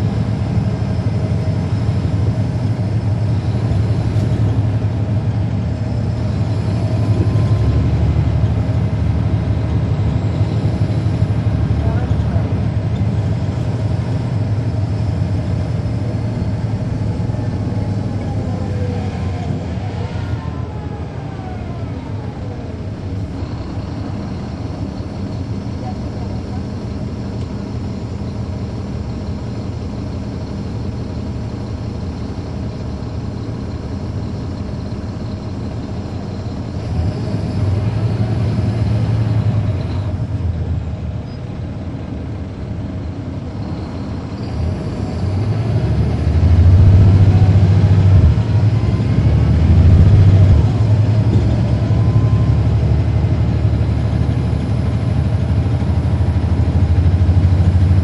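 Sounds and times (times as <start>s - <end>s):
bus diesel engine: 0.0s - 58.0s
faint rising whine: 46.0s - 52.7s.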